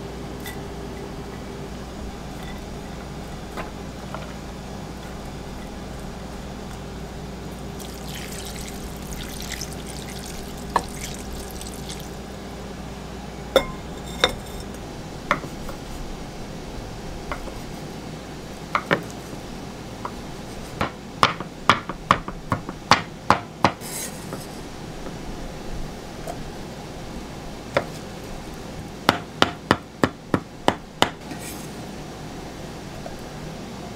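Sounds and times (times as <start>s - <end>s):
water pouring from a jug: 7.7s - 12.2s.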